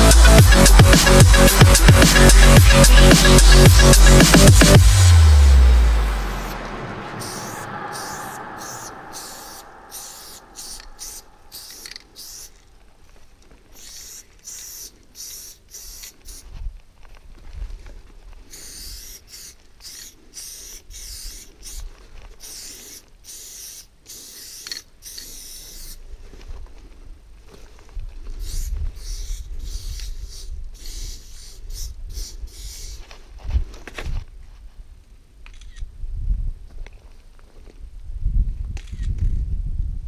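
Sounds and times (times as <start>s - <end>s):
spray paint can hissing: 0.0s - 5.6s, 7.2s - 12.6s, 13.8s - 16.4s, 18.5s - 21.8s, 22.4s - 26.0s, 28.4s - 33.0s
low rumble: 0.0s - 12.2s.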